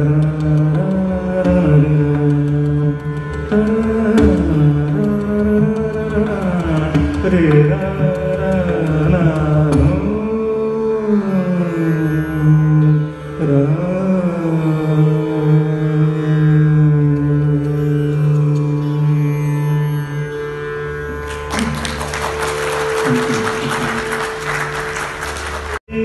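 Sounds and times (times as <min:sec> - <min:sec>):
pakhawaj drum strokes: 0:00.0 - 0:10.7, 0:21.1 - 0:25.8
man singing long held notes: 0:00.0 - 0:13.0
tanpura drone: 0:00.0 - 0:26.0.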